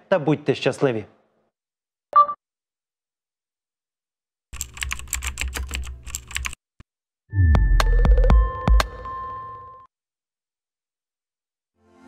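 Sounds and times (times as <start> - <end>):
rapid clicking: 4.6 - 6.6.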